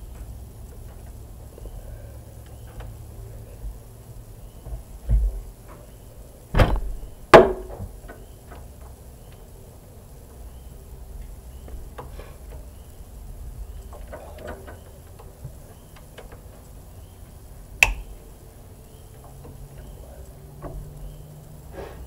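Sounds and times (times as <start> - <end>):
socket wrench metal clicks: 17.8 - 18.1.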